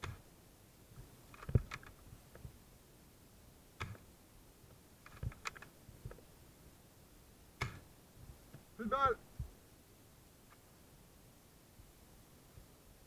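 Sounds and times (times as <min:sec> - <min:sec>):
sharp clicks and knocks: 0:00.0 - 0:00.2, 0:01.0 - 0:02.5, 0:03.8 - 0:04.1, 0:05.0 - 0:06.2, 0:07.6 - 0:07.9.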